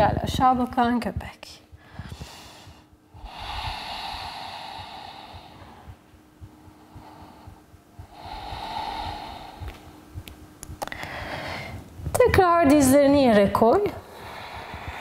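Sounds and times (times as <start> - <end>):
woman breathing slowly: 1.7 - 12.1, 13.8 - 15.0.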